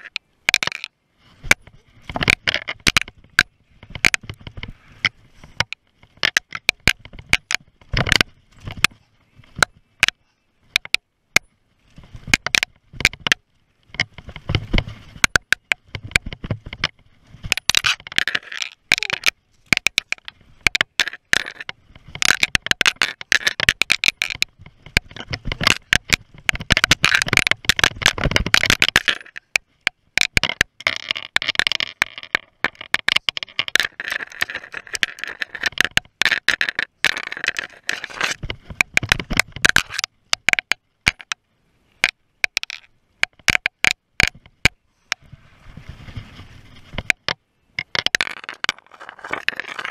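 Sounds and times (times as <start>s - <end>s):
bike clicking and knocking: 1.5s - 11.5s, 12.2s - 41.4s, 42.0s - 45.2s, 47.0s - 49.9s
tyres crunching over dirt and rocks: 45.8s - 49.9s.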